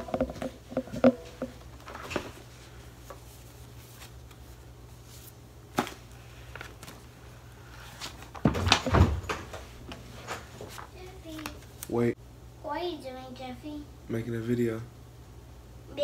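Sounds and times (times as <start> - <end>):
steady low hum: 0.0 - 8.4.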